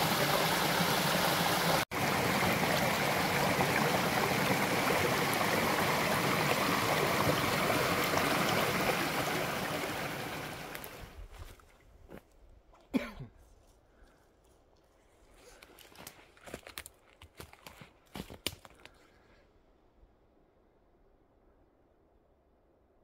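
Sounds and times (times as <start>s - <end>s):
stream rushing over rocks: 0.0s - 11.1s.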